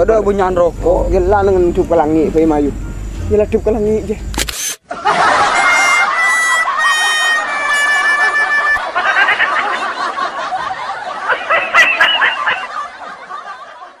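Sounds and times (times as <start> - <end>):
high-pitched giggling: 5.3 - 9.8, 11.3 - 13.0.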